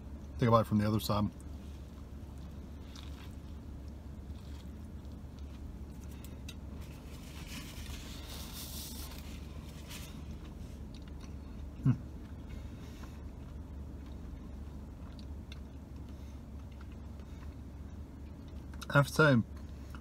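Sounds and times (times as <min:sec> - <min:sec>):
steady low hum: 0:00.0 - 0:20.0
man chewing: 0:01.4 - 0:18.9
soft crunching: 0:01.4 - 0:18.9.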